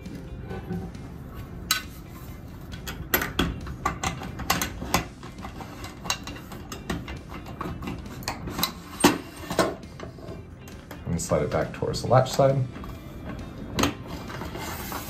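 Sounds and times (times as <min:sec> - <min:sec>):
metal bar clicks and knocks: 0:02.8 - 0:05.1.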